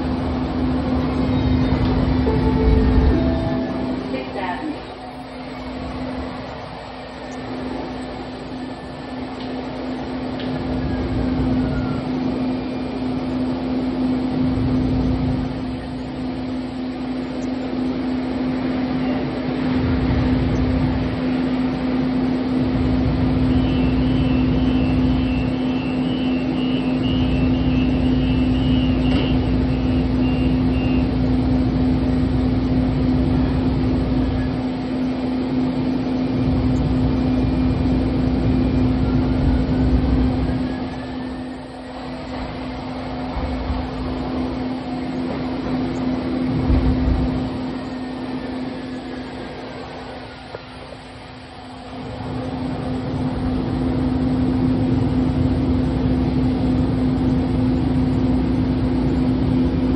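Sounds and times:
faint rising whine: 0:00.0 - 0:59.9
steady low hum: 0:00.0 - 0:59.9
train wheels rumbling on rails: 0:00.0 - 0:59.9.

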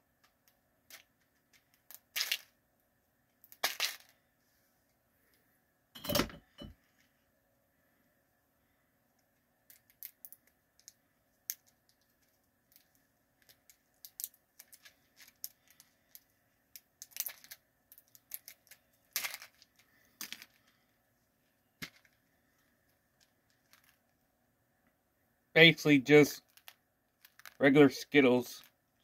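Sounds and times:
scratchy plastic rustles: 0:17.0 - 0:20.9.

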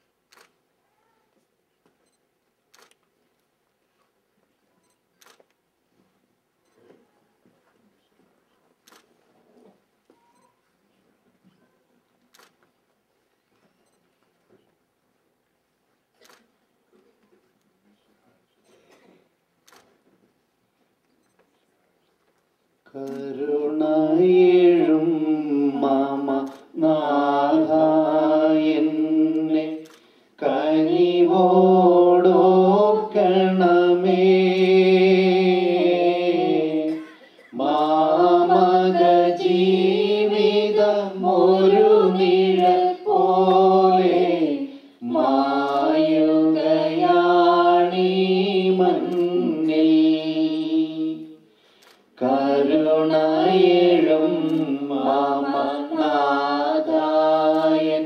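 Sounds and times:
voices singing a hymn: 0:22.9 - 0:51.5, 0:52.2 - 0:58.0.

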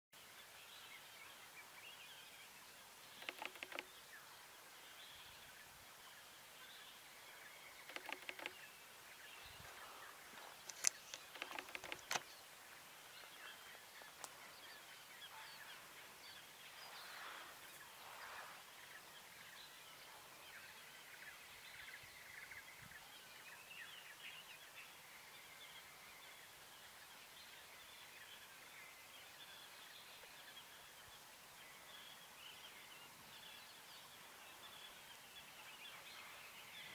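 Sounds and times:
small birds calling: 0:03.0 - 0:05.5, 0:06.2 - 0:20.1
sharp clicks: 0:03.2 - 0:03.9, 0:07.9 - 0:08.6, 0:10.6 - 0:12.3.

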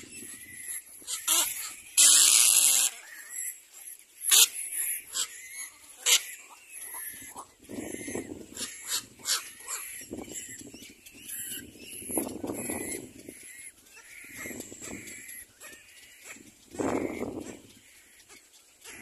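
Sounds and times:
hissing squawk: 0:00.0 - 0:10.6
cormorant chicks begging calls: 0:00.0 - 0:19.0.

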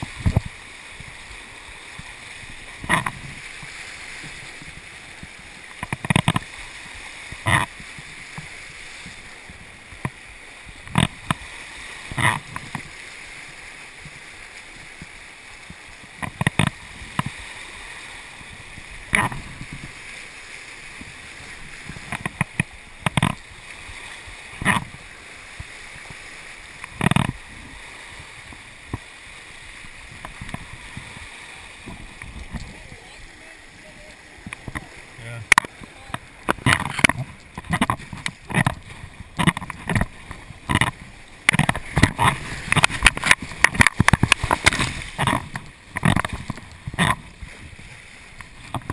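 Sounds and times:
river water rushing: 0:00.0 - 0:48.9
water splashing against hull: 0:00.0 - 0:48.9.

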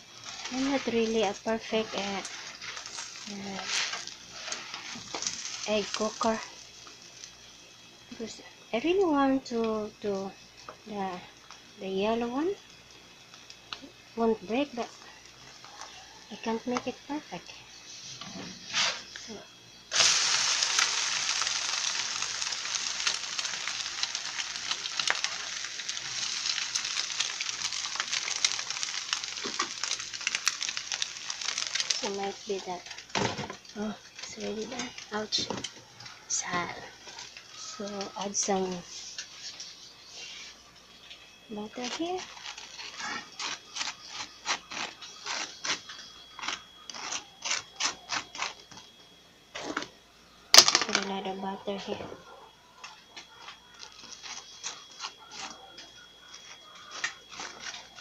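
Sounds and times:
egg sizzling on griddle: 0:00.0 - 0:49.0, 0:52.8 - 0:58.0
utensil scraping butter: 0:00.2 - 0:06.5, 0:41.7 - 0:48.8.

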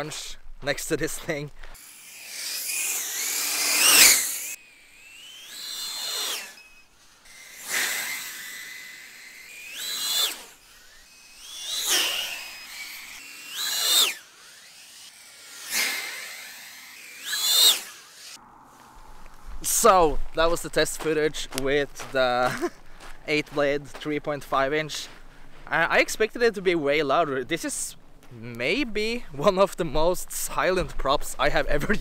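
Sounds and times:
drone motor and propeller whine: 0:01.8 - 0:20.9.

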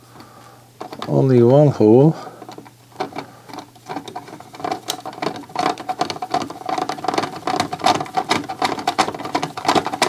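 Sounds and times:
screwdriver clicking and scraping metal: 0:02.4 - 0:10.0.

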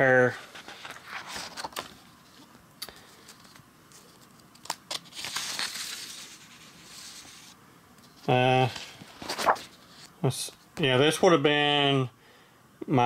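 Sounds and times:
plastic and paper rustling: 0:00.2 - 0:10.2.

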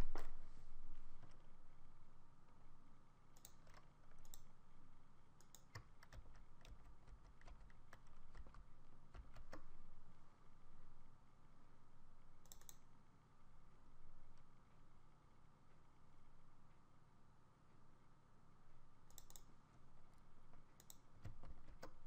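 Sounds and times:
keyboard typing: 0:03.4 - 0:04.5, 0:05.4 - 0:09.8, 0:12.5 - 0:12.8, 0:19.1 - 0:19.5, 0:20.5 - 0:22.0.

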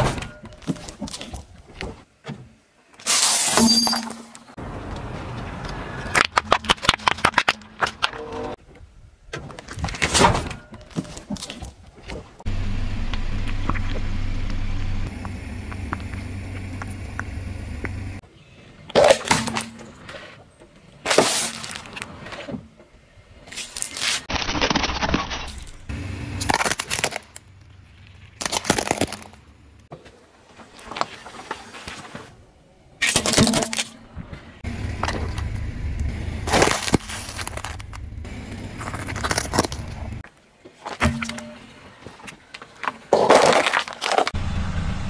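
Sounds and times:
car rumble: 0:12.3 - 0:18.2, 0:34.6 - 0:40.2, 0:44.4 - 0:45.0
tyre crushing objects: 0:36.4 - 0:40.2.

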